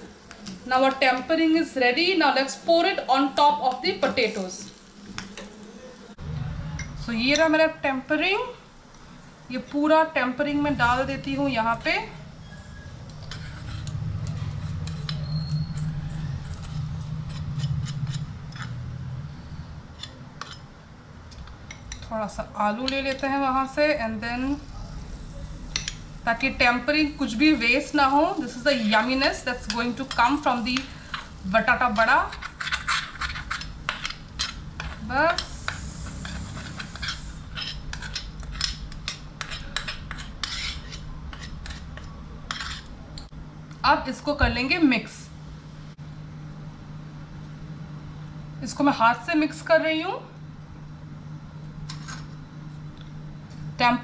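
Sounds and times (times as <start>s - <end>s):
low hum: 6.2s - 39.1s
metal spoon scraping steel pan: 11.8s - 19.0s, 20.0s - 20.7s, 25.7s - 42.9s.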